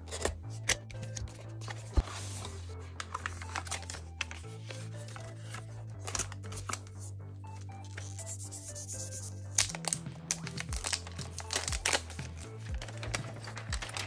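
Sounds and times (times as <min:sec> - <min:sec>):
background music: 0:00.0 - 0:14.0
plastic sleeve crinkling: 0:09.6 - 0:14.0.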